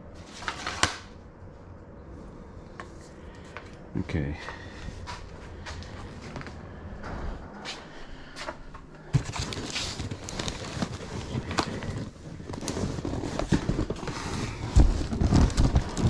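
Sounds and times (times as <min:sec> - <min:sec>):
belongings being rummaged: 0:09.0 - 0:16.0.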